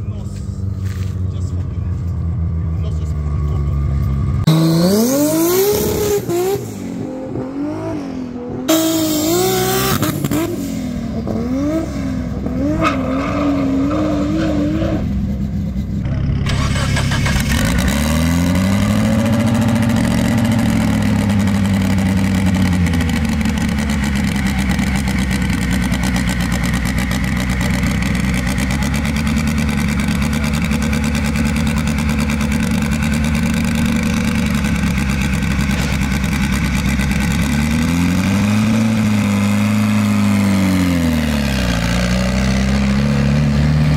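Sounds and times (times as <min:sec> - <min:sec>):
car engine revving: 0:00.0 - 0:43.9.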